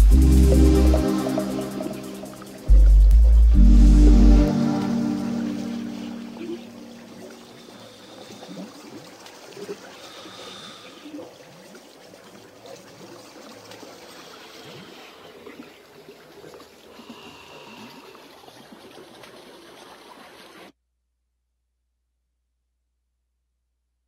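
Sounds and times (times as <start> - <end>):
faint drawn-out high tones: 0.0 - 7.9
trickling bubbling water: 6.2 - 20.7.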